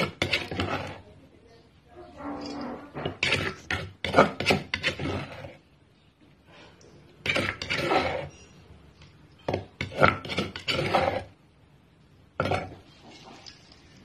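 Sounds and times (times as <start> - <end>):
spoon scraping metal bowl: 0.0 - 1.2, 2.2 - 5.7, 7.2 - 8.7, 9.4 - 11.4, 12.4 - 13.9.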